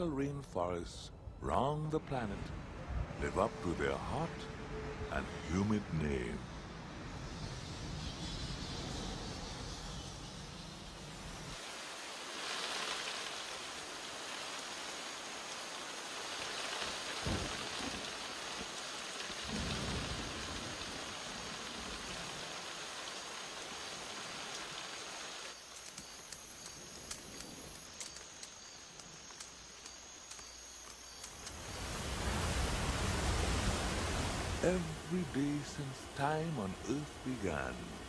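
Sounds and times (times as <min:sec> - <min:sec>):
rain on foliage: 0:11.5 - 0:38.0
thunder rumble: 0:17.2 - 0:18.2, 0:19.4 - 0:22.4.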